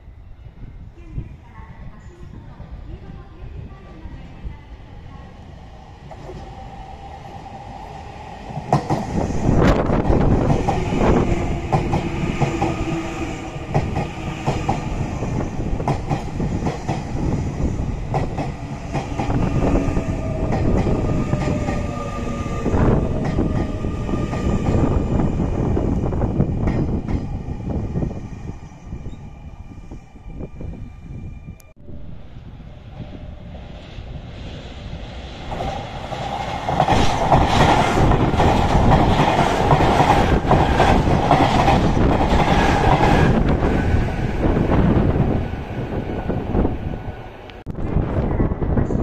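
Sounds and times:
electric train running past: 0:02.0 - 0:49.0.

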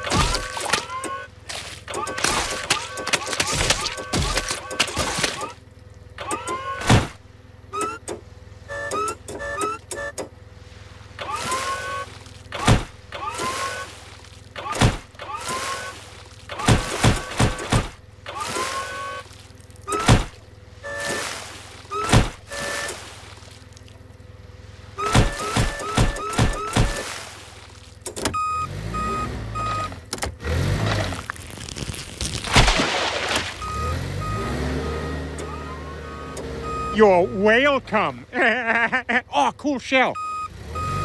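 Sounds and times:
reversing beeps: 0:00.4 - 0:01.3, 0:07.7 - 0:10.3, 0:25.0 - 0:27.1, 0:28.3 - 0:30.0, 0:33.6 - 0:37.9, 0:40.1 - 0:41.0.

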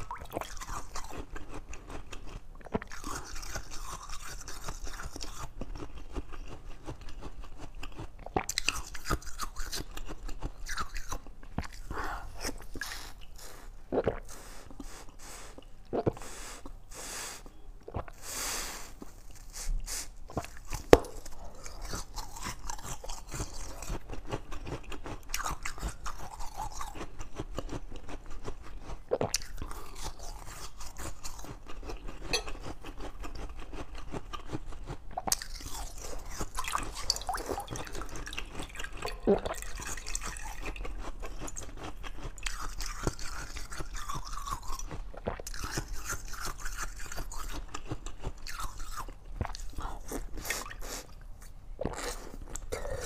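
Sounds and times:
chewing crunchy ice: 0:00.0 - 0:16.9, 0:20.2 - 0:53.0.

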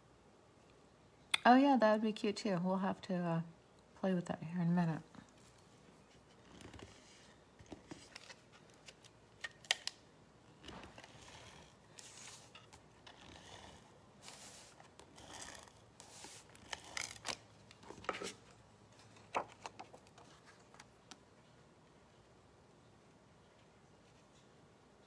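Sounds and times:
paper sliding and handling: 0:10.6 - 0:20.9.

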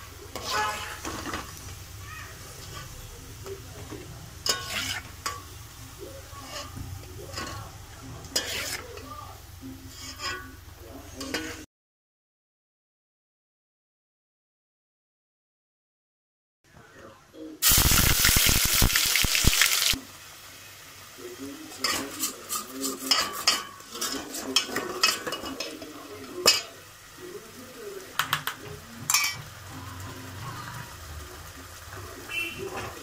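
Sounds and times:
paste sizzling in hot oil: 0:00.0 - 0:10.2, 0:17.6 - 0:28.1
spoon scraping metal pot: 0:00.3 - 0:01.5, 0:04.4 - 0:05.5, 0:06.4 - 0:09.0, 0:09.8 - 0:10.6.

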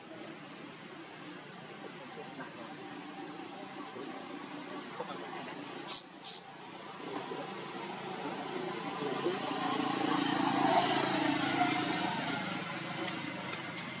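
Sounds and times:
vehicle engine passing by: 0:07.0 - 0:14.0.

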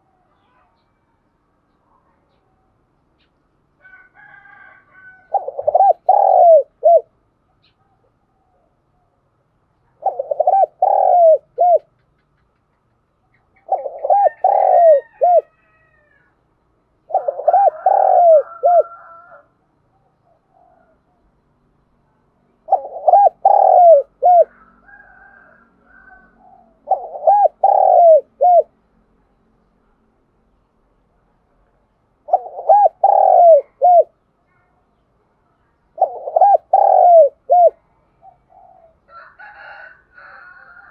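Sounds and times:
dove cooing: 0:04.7 - 0:07.1, 0:09.9 - 0:12.0, 0:13.4 - 0:16.3, 0:17.0 - 0:19.5, 0:22.6 - 0:28.8, 0:32.2 - 0:34.2, 0:36.0 - 0:40.9.

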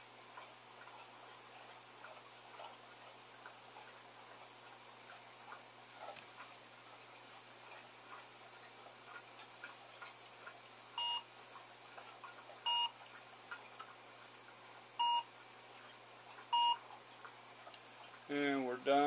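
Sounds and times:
short bright beeps: 0:11.0 - 0:11.2, 0:12.7 - 0:12.9, 0:15.0 - 0:15.3, 0:16.6 - 0:16.8.

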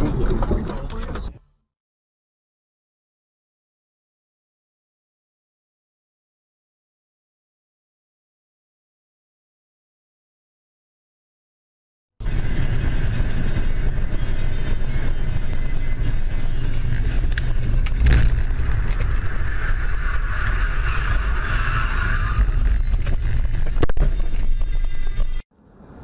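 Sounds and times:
car road and engine noise: 0:00.0 - 0:01.6, 0:12.2 - 0:26.0.

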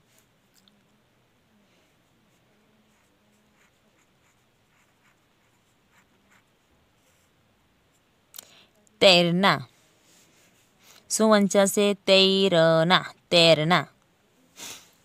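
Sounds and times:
pen scratching on paper: 0:02.3 - 0:07.3.

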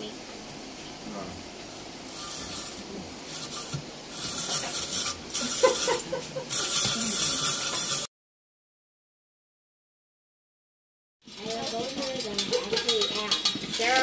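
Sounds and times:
food processor blade rasping carrot: 0:02.1 - 0:08.1, 0:11.3 - 0:14.0.

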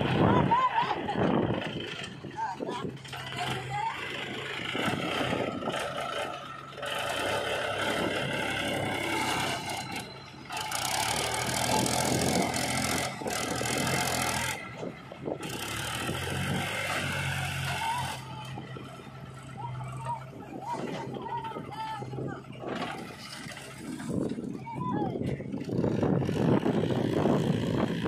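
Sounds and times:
backhoe loader engine working: 0:00.0 - 0:28.0
tractor diesel engine under load: 0:00.0 - 0:28.0.

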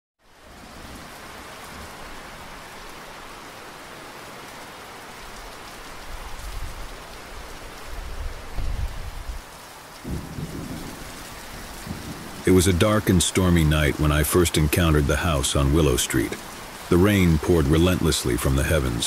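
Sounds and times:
steady rain: 0:00.2 - 0:19.0
thunder rumbling: 0:10.0 - 0:19.0.

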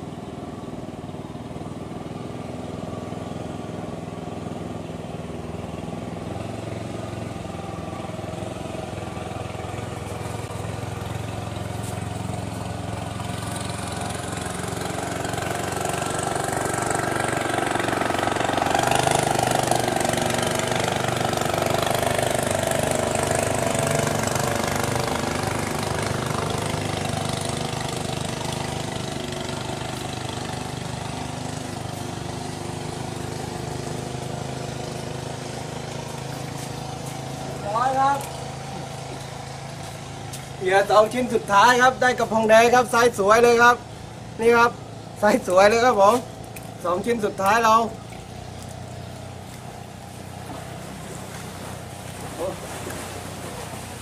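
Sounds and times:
engine running: 0:00.0 - 0:54.0.

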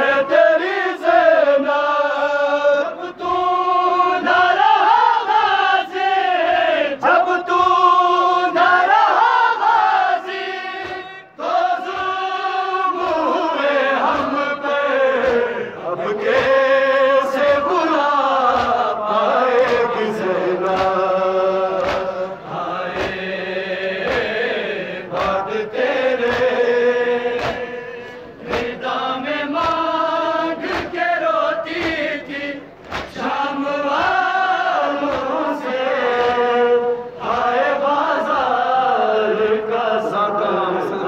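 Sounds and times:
men chanting a lament: 0:00.0 - 0:41.0
hands slapping chests: 0:10.7 - 0:11.2, 0:12.9 - 0:13.4, 0:14.0 - 0:14.5, 0:15.2 - 0:15.7, 0:17.3 - 0:23.3, 0:24.0 - 0:28.8, 0:29.5 - 0:31.0, 0:31.6 - 0:36.6.

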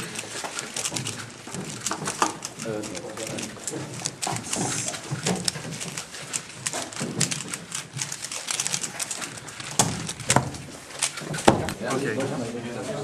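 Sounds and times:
puzzle cube plastic clicks: 0:00.0 - 0:11.8.

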